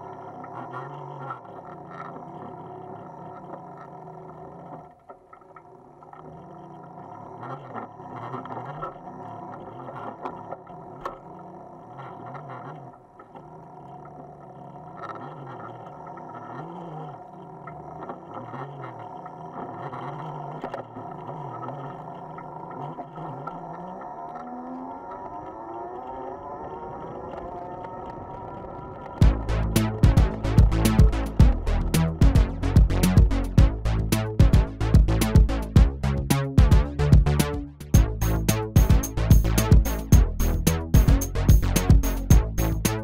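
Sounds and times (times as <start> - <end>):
electric bicycle motor whining: 0.0 - 43.0
bike rattling and knocking: 29.2 - 43.0.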